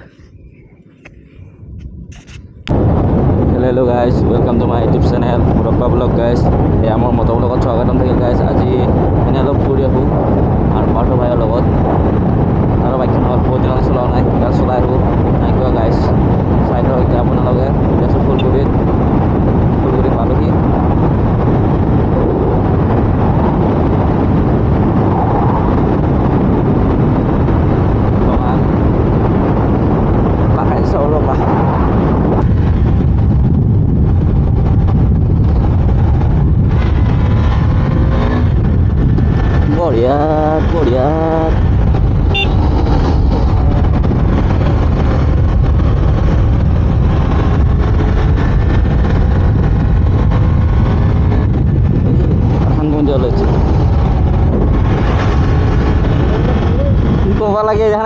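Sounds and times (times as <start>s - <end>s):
wind rushing over microphone: 0.0s - 58.0s
motorcycle engine running: 32.5s - 57.2s.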